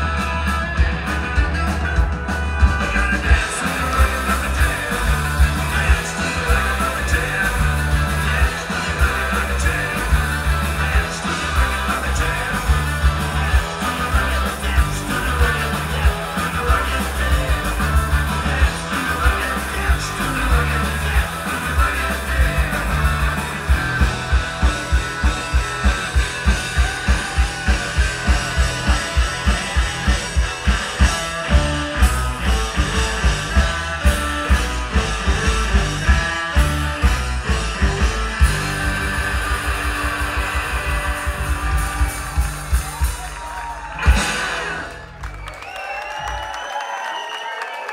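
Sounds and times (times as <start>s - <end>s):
fast pounding drum beat: 0.0s - 45.2s
live rock band playing: 0.0s - 46.6s
person singing: 1.1s - 24.4s.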